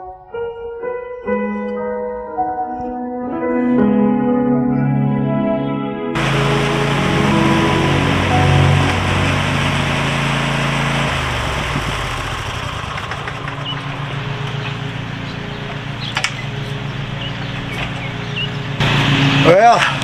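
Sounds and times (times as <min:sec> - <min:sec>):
background music: 0:00.0 - 0:10.4
lawn mower engine idling: 0:06.2 - 0:20.0.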